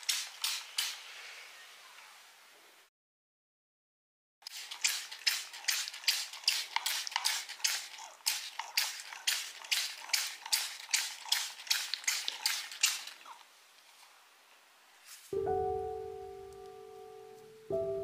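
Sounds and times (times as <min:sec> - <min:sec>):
spray bottle hissing sprays: 0:00.0 - 0:01.2, 0:04.4 - 0:13.1.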